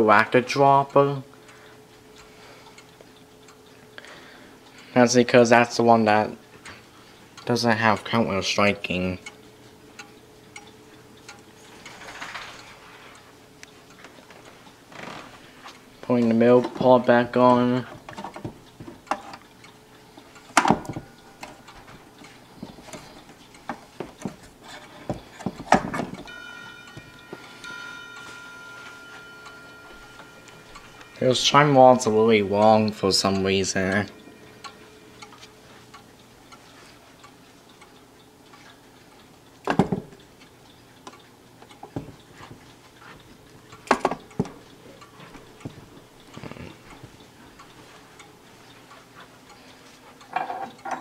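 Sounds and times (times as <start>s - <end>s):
clock ticking: 0.0s - 51.0s
wooden clicks and knocks: 22.6s - 26.3s.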